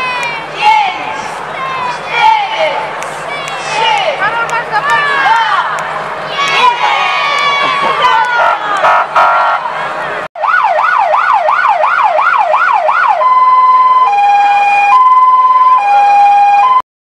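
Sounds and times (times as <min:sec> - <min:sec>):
emergency vehicle siren: 0:03.6 - 0:16.8.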